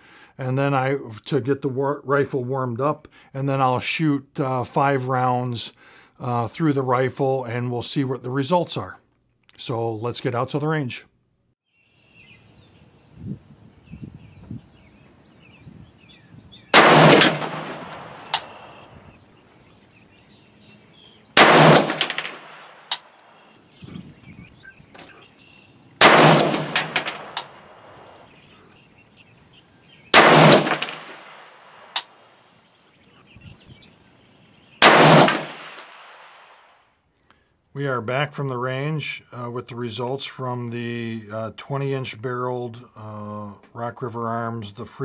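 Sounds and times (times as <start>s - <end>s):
rifle shots: 16.7s - 18.9s, 21.4s - 23.1s, 26.0s - 28.2s, 30.1s - 32.1s, 34.8s - 36.6s
metallic clinks: 26.7s - 27.5s, 35.8s - 36.2s.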